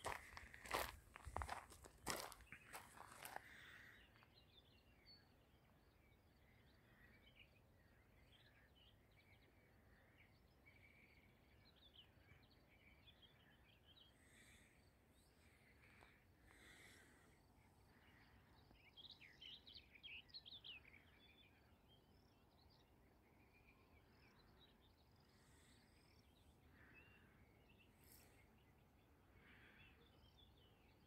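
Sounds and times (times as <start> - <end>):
footsteps on gravel: 0.0 - 3.6.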